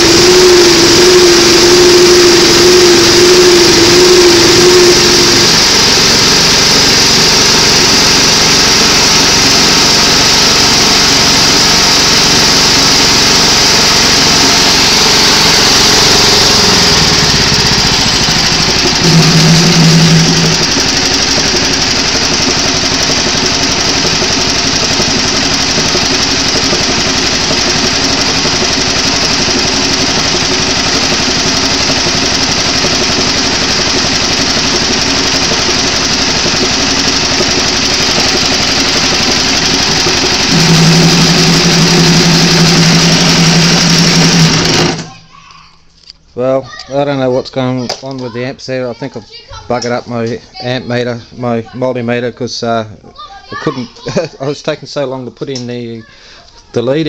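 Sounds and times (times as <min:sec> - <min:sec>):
small engine running: 0:00.0 - 0:45.3.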